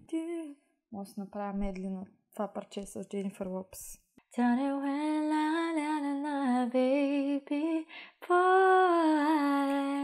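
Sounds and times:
woman singing wordless melody: 0:00.0 - 0:00.6, 0:04.3 - 0:10.0.

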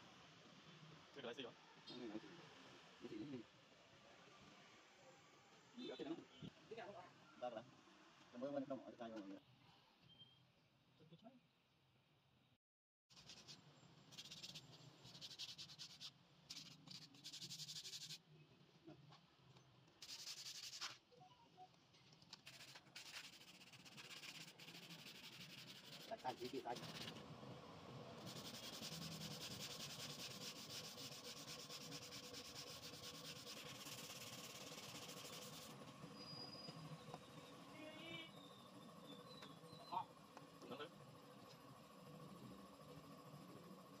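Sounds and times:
sandpaper rubbing on metal: 0:13.1 - 0:18.2, 0:20.0 - 0:21.0, 0:22.4 - 0:27.2, 0:28.2 - 0:35.8.

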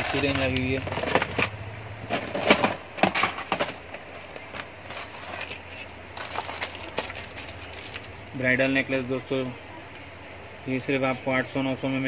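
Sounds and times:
plastic boxes clacking: 0:00.0 - 0:05.6
plastic wrapping rustling: 0:00.0 - 0:09.5.

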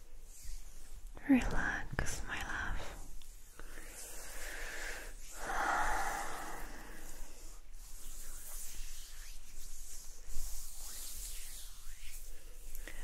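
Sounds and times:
oiled hands rubbing: 0:00.0 - 0:13.0.

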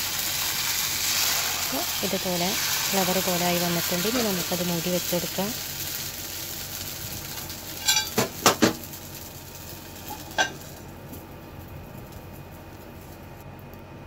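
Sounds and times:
batter sizzling in pan: 0:00.0 - 0:13.7
metal lid clanking on pan: 0:07.8 - 0:08.7, 0:10.1 - 0:10.6.

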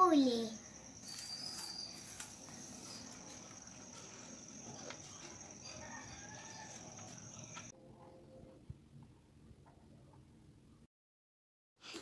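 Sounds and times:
insect trill: 0:00.0 - 0:07.7.

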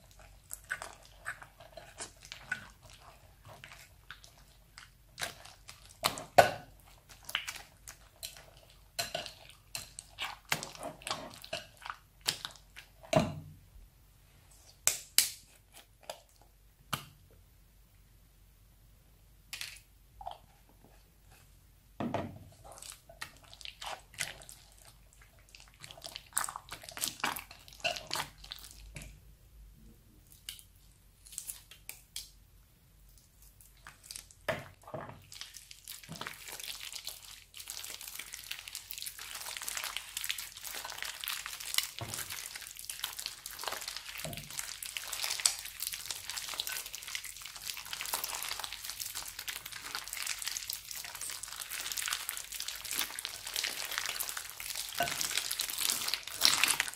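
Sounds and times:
slime crackling when kneaded: 0:35.3 - 0:56.9.

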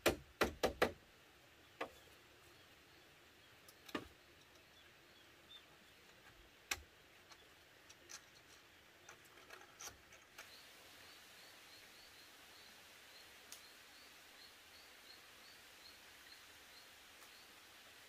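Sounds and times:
bamboo poles knocking: 0:00.0 - 0:01.0
faint chirping: 0:01.6 - 0:18.0.

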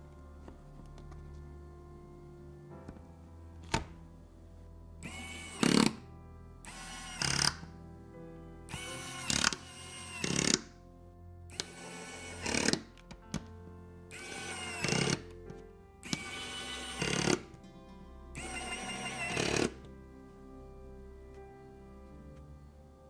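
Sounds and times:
electric screwdriver whine: 0:05.0 - 0:06.0, 0:06.6 - 0:07.6, 0:08.7 - 0:10.7, 0:11.5 - 0:12.9, 0:14.1 - 0:15.2, 0:16.0 - 0:17.5, 0:18.4 - 0:19.8.

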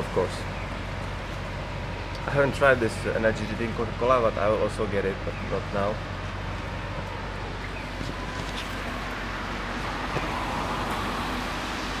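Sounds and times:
street traffic hiss: 0:00.0 - 0:12.0.

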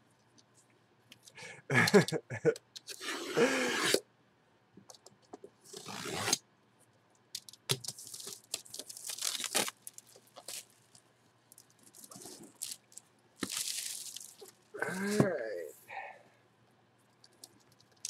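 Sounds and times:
plastic wrap ripping and crinkling: 0:07.9 - 0:11.0, 0:11.9 - 0:14.6.

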